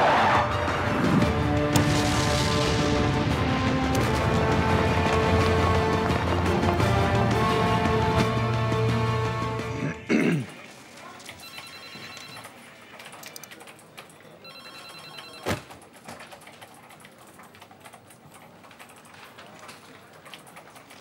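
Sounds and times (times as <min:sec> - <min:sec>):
telephone electronic ring: 0:11.4 - 0:12.6, 0:14.4 - 0:15.6.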